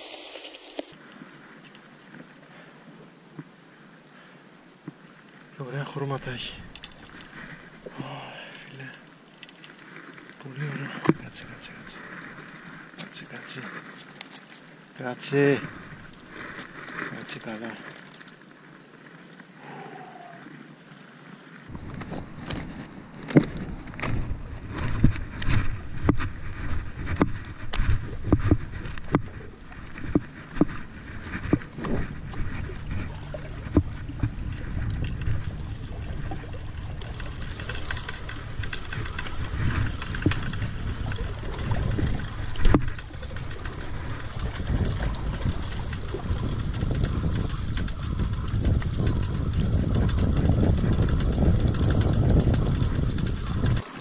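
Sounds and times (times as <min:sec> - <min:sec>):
fishing reel being cranked: 0:05.4 - 0:07.8, 0:10.8 - 0:14.5, 0:15.4 - 0:18.4, 0:31.4 - 0:54.0
steady high whine: 0:29.6 - 0:40.4.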